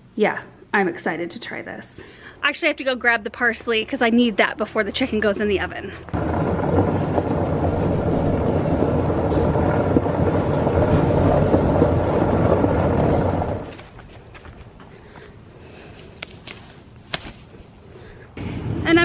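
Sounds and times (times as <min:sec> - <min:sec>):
utility vehicle engine rumble: 0:05.5 - 0:15.2.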